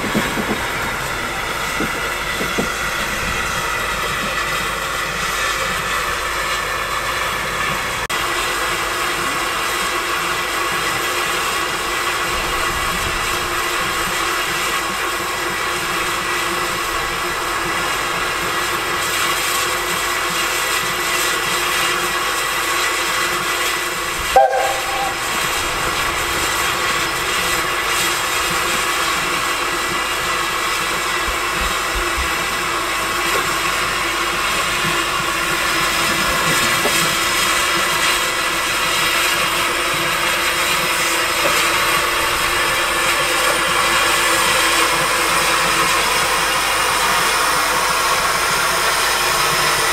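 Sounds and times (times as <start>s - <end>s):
steady hiss of steam: 0.0s - 49.9s
steam locomotive moving slowly: 0.0s - 49.9s
steam locomotive whistle toot: 24.2s - 27.4s.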